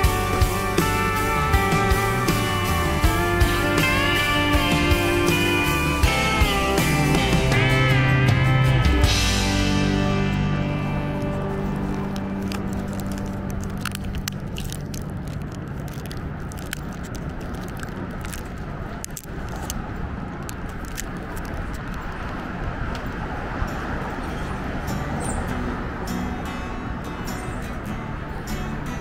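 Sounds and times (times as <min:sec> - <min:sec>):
traffic noise: 0:00.0 - 0:29.0.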